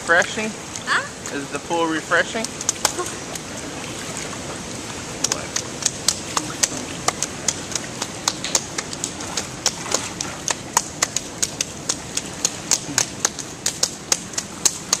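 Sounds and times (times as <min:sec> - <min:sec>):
rain falling: 0:00.0 - 0:15.0
raindrop ticks: 0:02.3 - 0:03.6, 0:05.2 - 0:15.0.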